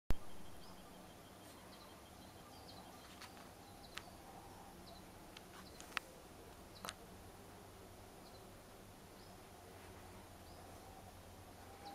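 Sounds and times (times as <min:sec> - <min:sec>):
bird chirps: 0:00.1 - 0:05.9, 0:08.2 - 0:08.5
low steady background: 0:00.1 - 0:11.9.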